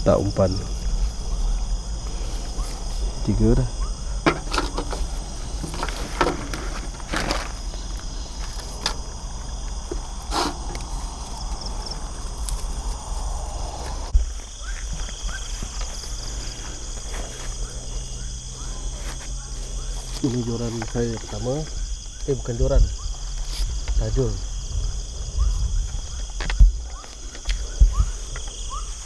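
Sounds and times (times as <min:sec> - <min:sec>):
night insects chorus: 0:00.0 - 0:29.0
rustling: 0:04.1 - 0:21.8
footsteps through grass: 0:04.8 - 0:21.2.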